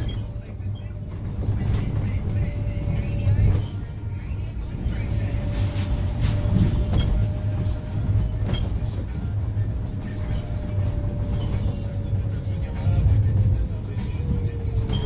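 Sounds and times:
engine and road rumble: 0.0 - 15.0.

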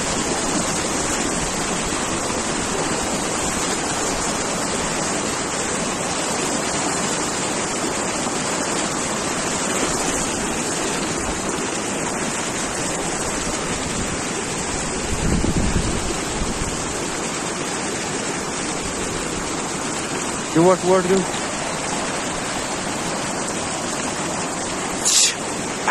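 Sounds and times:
stream rushing over rocks: 0.0 - 25.9
wind buffeting microphone: 13.0 - 17.1.

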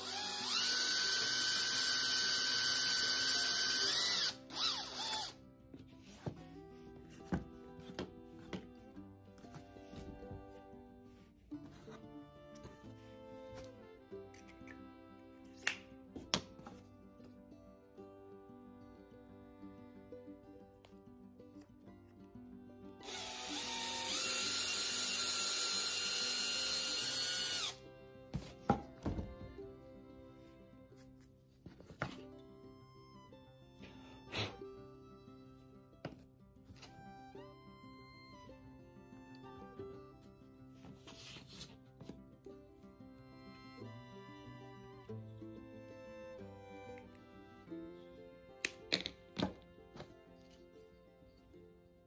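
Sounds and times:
drill motor revving blips: 0.0 - 5.3, 23.0 - 27.8
cordless drill boring into wood: 0.0 - 5.4, 23.0 - 27.8.

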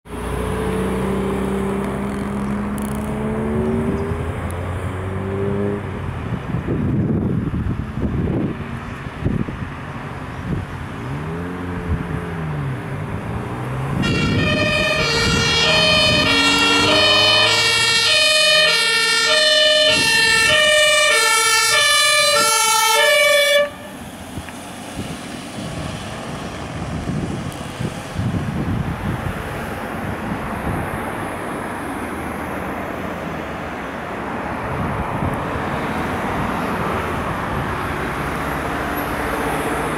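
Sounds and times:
vehicle engine and tyres passing: 0.1 - 39.9
two-tone ambulance siren: 14.0 - 24.0.

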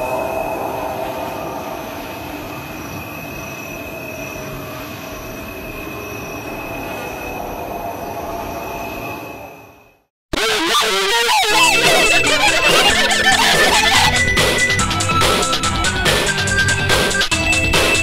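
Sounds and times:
steady rumbling noise: 0.0 - 3.5
high held whine: 0.0 - 18.0.

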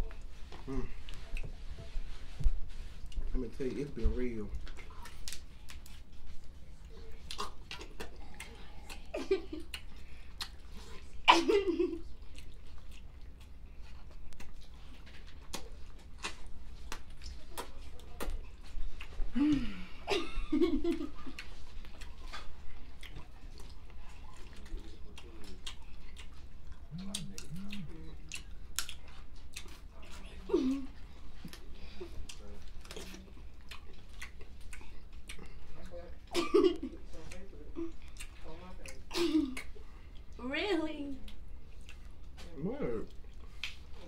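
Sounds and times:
chewing and lip smacking: 0.0 - 1.9, 2.7 - 11.3, 12.0 - 19.3, 21.0 - 40.4, 41.1 - 44.0.

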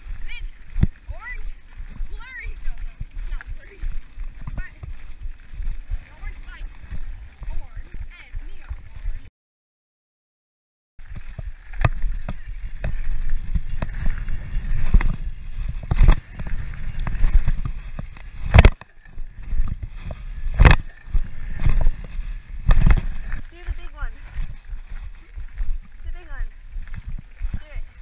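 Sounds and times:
bike knocks and rattles: 0.0 - 9.3, 11.0 - 28.0
bike tyres rumbling on dirt: 0.0 - 9.3, 11.0 - 28.0
wind on microphone: 11.1 - 26.0.

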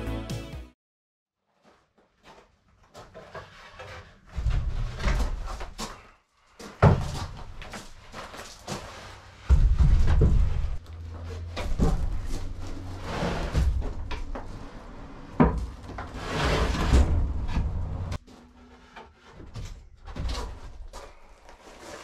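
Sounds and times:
wooden benches knocking and scraping: 9.4 - 20.8
heavy thump: 9.5 - 10.8.

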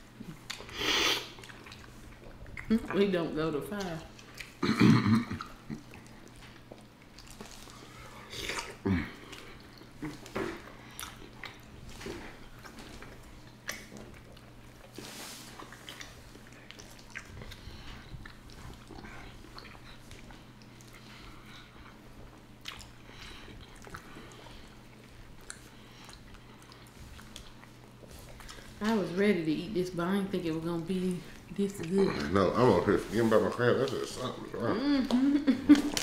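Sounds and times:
chewing and biting: 1.3 - 3.0, 3.8 - 4.6, 5.3 - 28.8
wet clicks and smacks: 13.6 - 14.2.

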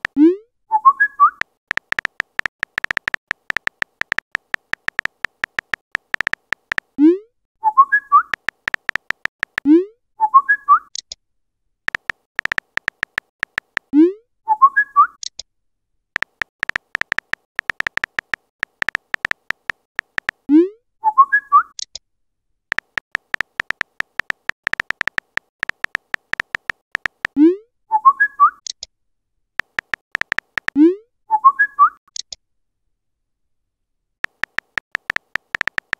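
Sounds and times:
phone keyboard typing clicks: 0.0 - 0.2, 1.4 - 7.0, 8.2 - 9.7, 11.9 - 13.9, 16.2 - 20.5, 22.7 - 27.4, 29.6 - 30.8, 34.2 - 35.9.

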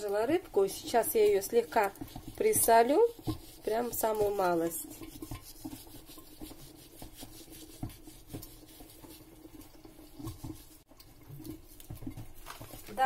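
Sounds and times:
faint rubbing: 0.9 - 10.8.

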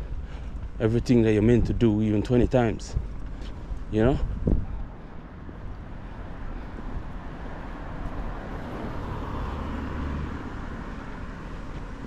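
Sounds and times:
car passing: 4.8 - 12.0.

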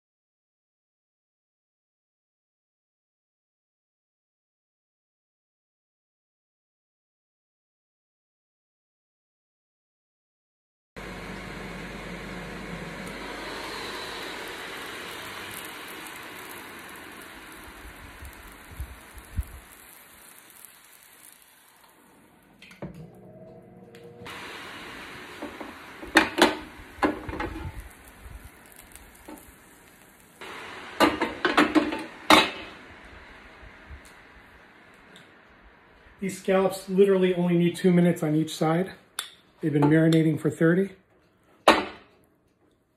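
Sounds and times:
grill fan hissing and sizzling: 11.0 - 38.9.

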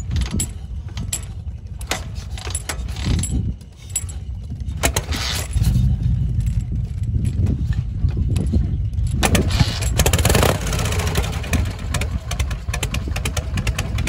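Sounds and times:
motorcycle engine rumbling: 0.0 - 14.0
engine turning over: 9.1 - 14.0.

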